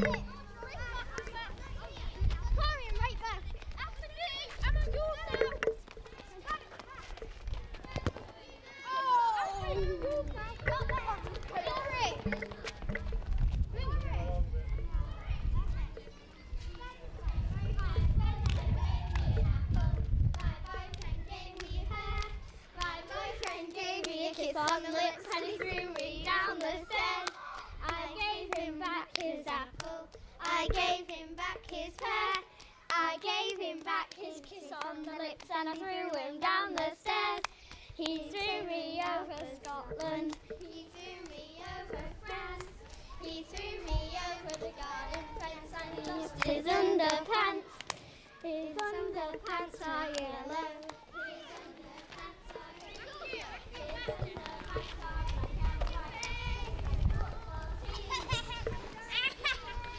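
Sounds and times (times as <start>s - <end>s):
young girls singing rhyme: 0.0s - 5.8s, 9.6s - 13.1s, 15.3s - 59.9s
palms clapping: 20.3s - 48.1s, 48.7s - 57.1s.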